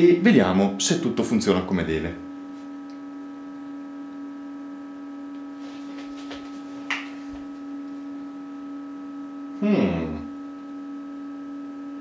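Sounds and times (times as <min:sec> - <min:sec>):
electrical hum: 0:00.0 - 0:12.0.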